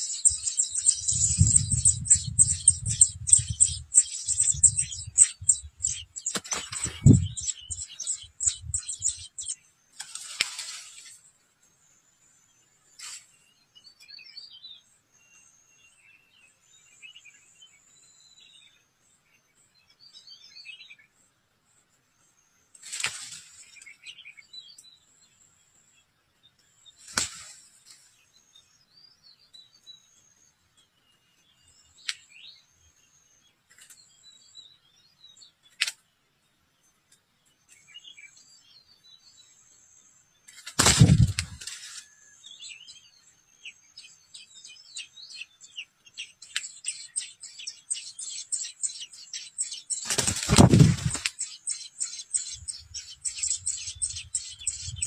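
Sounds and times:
songbirds chirping: 0:00.0 - 0:55.0
loud rustles: 0:50.0 - 0:51.3.

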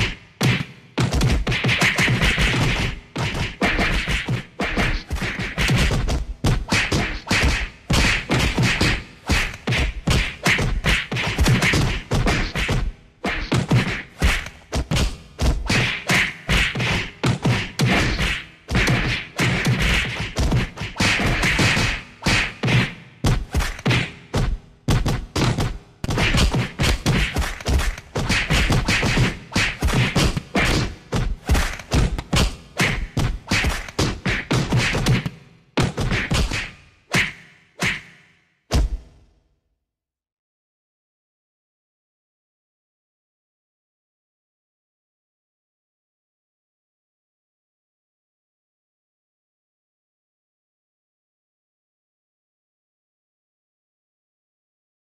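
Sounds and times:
punch thuds and whacks: 0:00.0 - 0:39.2.

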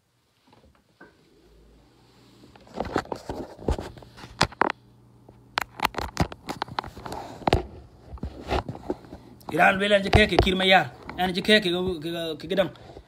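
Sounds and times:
faint low hum: 0:00.0 - 0:13.0
phone handling noise: 0:05.6 - 0:10.6.

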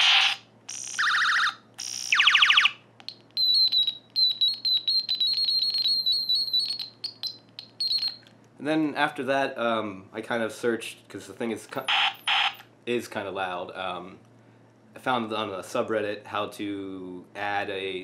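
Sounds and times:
high-pitched stuttering beeps: 0:00.0 - 0:02.7
toy ray gun zaps: 0:00.0 - 0:02.8.

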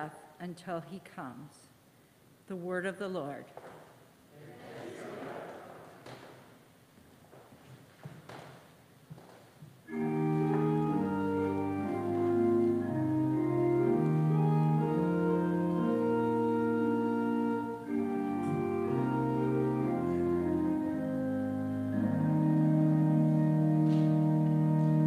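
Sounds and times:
church organ chords: 0:09.9 - 0:25.0.

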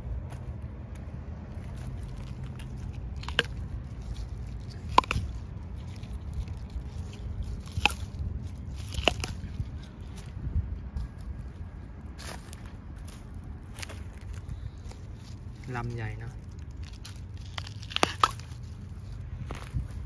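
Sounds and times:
plant stems snapping: 0:01.8 - 0:10.3, 0:16.4 - 0:18.8.

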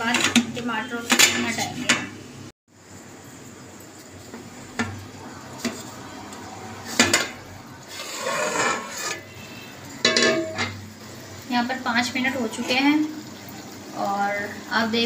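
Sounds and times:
cooking pot hissing: 0:00.0 - 0:15.0
lid scraping off pot: 0:07.9 - 0:09.4.

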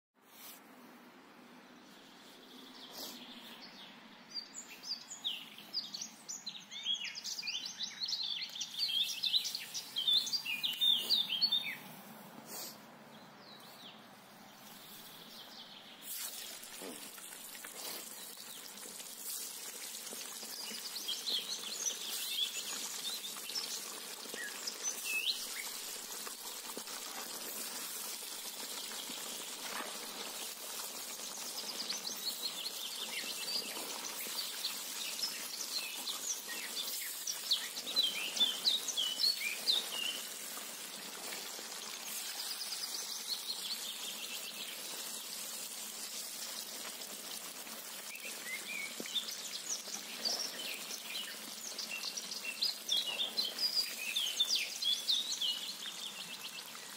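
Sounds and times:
small birds chirping: 0:01.8 - 0:56.9
food sizzling in hot oil: 0:16.0 - 0:56.9.

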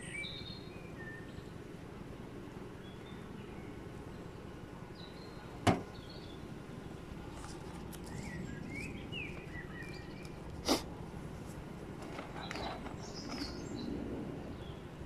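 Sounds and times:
bird chirps: 0:00.0 - 0:01.6, 0:02.8 - 0:07.2, 0:07.8 - 0:10.4, 0:12.3 - 0:14.9
outdoor background rumble: 0:00.0 - 0:15.0.

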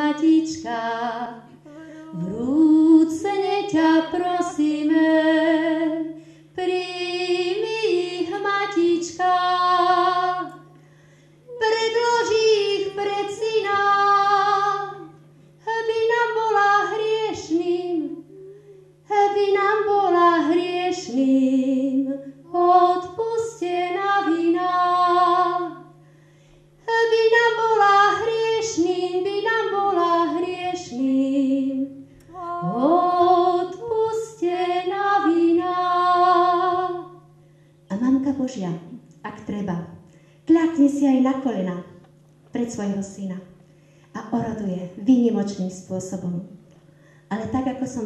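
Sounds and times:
woman singing unaccompanied: 0:00.0 - 0:10.6, 0:11.5 - 0:25.9, 0:26.8 - 0:37.2.

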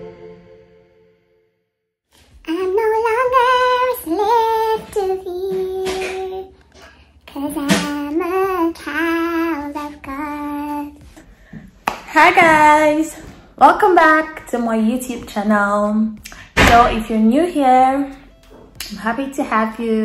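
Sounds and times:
woman singing unaccompanied: 0:02.4 - 0:06.5, 0:07.3 - 0:11.1.

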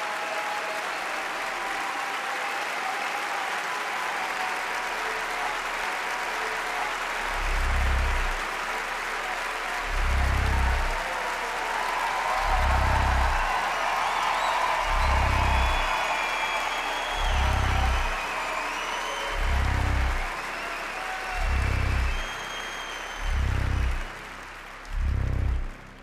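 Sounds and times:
audience applauding: 0:00.0 - 0:26.0
deep bass pulses: 0:05.3 - 0:26.0.

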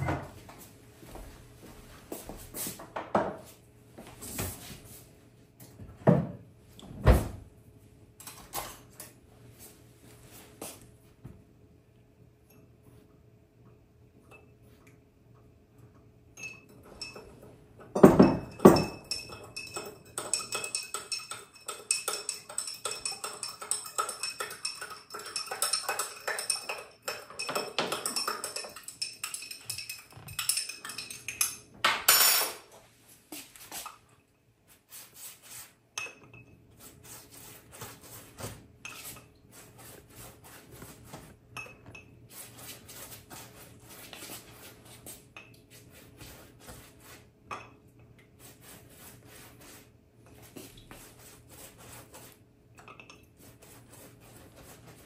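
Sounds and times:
metal spoon clinking and scraping glass: 0:16.4 - 0:32.6, 0:52.8 - 0:53.3.

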